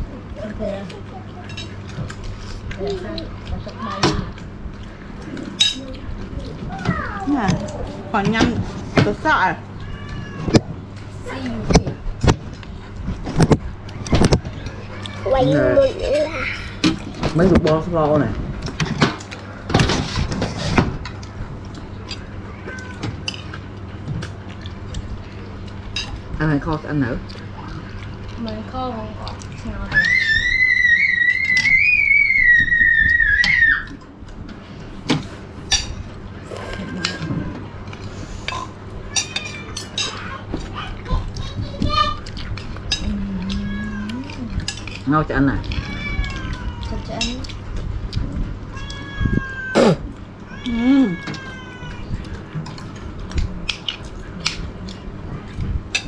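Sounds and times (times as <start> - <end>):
cat meowing: 9.8 - 10.7, 22.5 - 23.1, 43.4 - 44.4, 45.6 - 47.3, 48.7 - 52.3.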